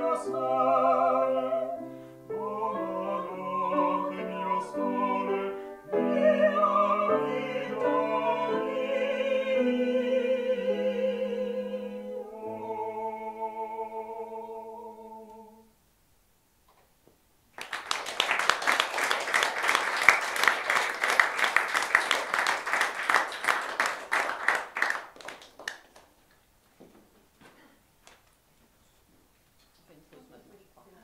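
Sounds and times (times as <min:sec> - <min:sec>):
audience applauding: 0:17.6 - 0:26.4.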